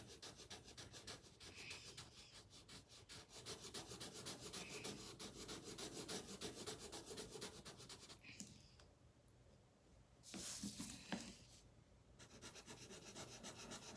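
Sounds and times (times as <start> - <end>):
marker rubbing on paper: 0.0 - 8.2, 12.2 - 13.9.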